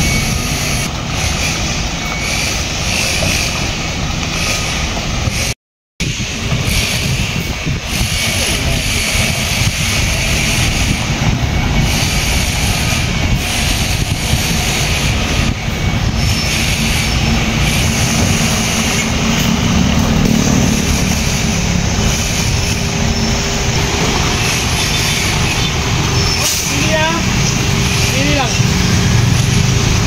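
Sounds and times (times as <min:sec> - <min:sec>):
diesel truck engine idling: 0:16.8 - 0:30.0.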